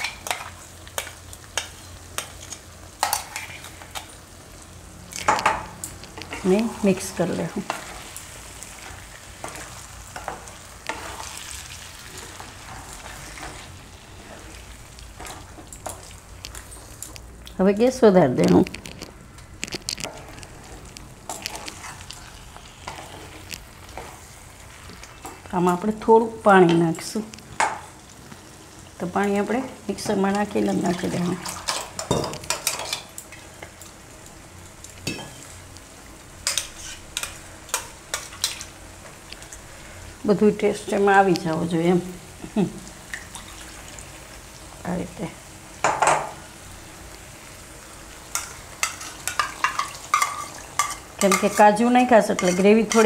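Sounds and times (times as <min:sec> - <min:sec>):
low sizzle from pan: 0:00.0 - 0:53.0
spatula stirring thick food: 0:19.7 - 0:25.5, 0:36.4 - 0:38.7, 0:48.3 - 0:53.0.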